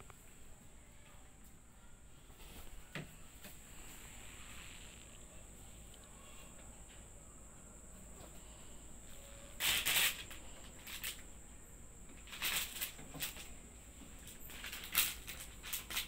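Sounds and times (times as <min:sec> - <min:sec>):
cellophane crinkling: 0:09.6 - 0:11.2, 0:12.2 - 0:13.5, 0:14.2 - 0:16.0.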